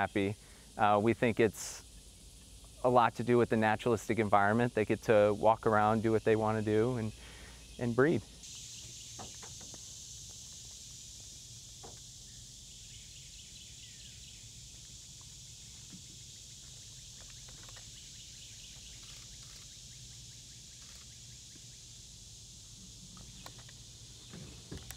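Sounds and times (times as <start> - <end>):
high-pitched hiss: 0.0 - 24.9
bird chirp: 5.7 - 22.1, 23.0 - 24.9.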